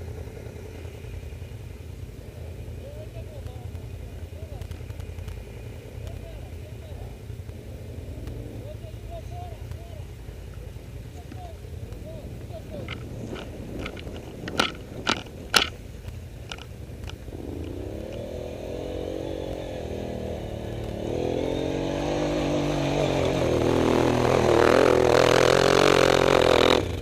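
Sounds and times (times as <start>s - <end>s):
atv engine revving: 0.0s - 27.0s
sharp knocks: 12.8s - 15.8s.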